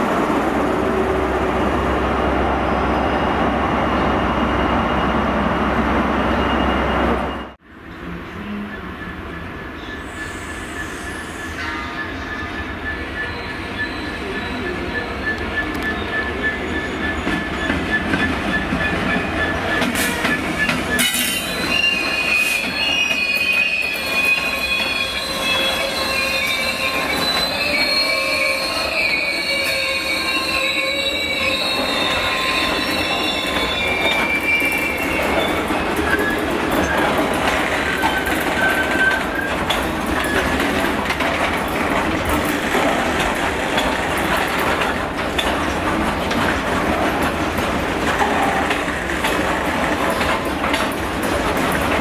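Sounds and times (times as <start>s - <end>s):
train wheels rumbling on rails: 0.0s - 52.0s
train wheels squealing: 6.2s - 7.6s, 9.8s - 41.2s.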